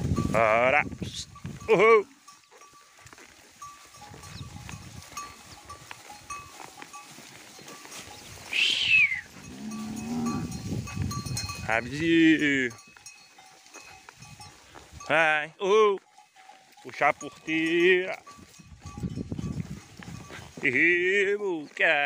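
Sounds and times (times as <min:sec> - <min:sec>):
cow mooing: 0:08.6 - 0:10.7.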